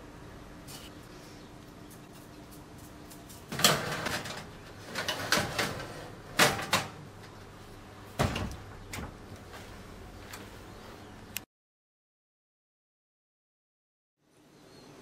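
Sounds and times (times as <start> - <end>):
metal baking tray clattering: 3.5 - 7.0
oven door shutting with a thud: 3.5 - 7.0, 8.2 - 9.2.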